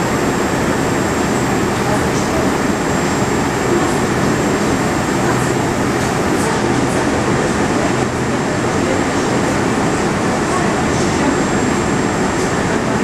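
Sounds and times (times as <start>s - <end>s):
subway car rumbling and hissing: 0.0s - 13.0s.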